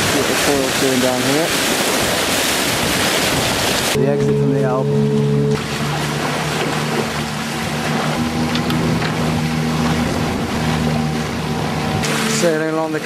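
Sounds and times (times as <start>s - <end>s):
wind and water rushing: 0.0s - 13.0s
low steady hum: 4.0s - 12.5s.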